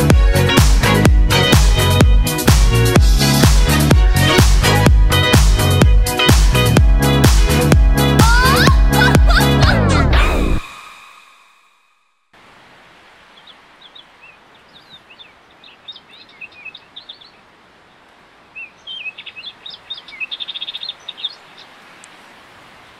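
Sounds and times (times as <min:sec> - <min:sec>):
steady outdoor hiss: 0:00.0 - 0:08.4, 0:10.6 - 0:22.9
music track: 0:00.0 - 0:11.3
small birds chirping: 0:13.2 - 0:22.1
bird trill: 0:18.6 - 0:21.7.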